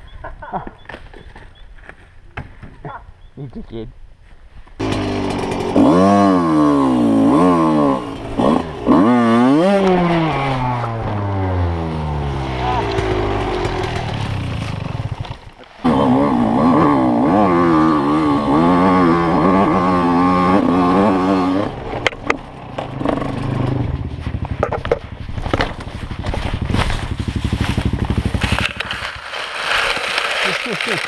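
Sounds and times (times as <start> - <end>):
dirt bike engine revving: 4.8 - 30.8
bike knocking over rough ground: 24.2 - 31.0.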